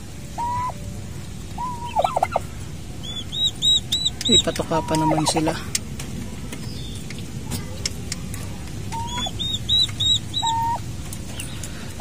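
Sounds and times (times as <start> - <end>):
low background rumble: 0.0 - 12.0
turkey hen calls: 0.4 - 0.8, 1.6 - 2.4, 3.0 - 5.6, 8.9 - 10.8
turkey poults peeping: 0.4 - 0.8, 1.6 - 5.6, 8.9 - 12.0.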